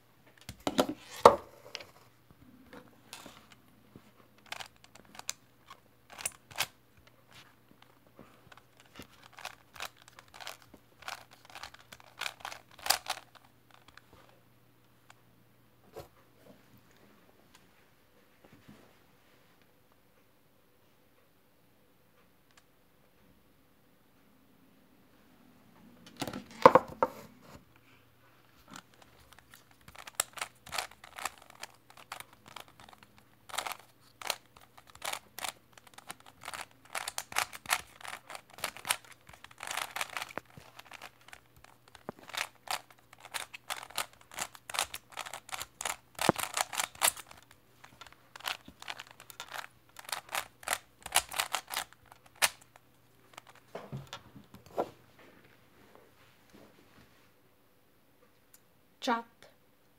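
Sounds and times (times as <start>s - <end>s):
plastic cube clicking turns: 4.4s - 6.8s, 8.5s - 14.0s, 28.7s - 53.6s.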